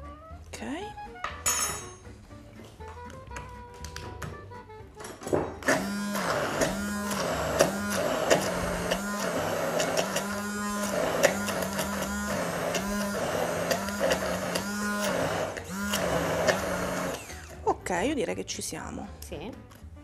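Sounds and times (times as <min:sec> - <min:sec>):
immersion blender running: 0:05.6 - 0:17.6.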